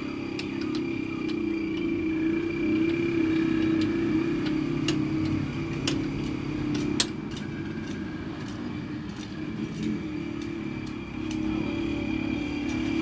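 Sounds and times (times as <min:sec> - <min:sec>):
engine running with whine: 0:00.0 - 0:13.0.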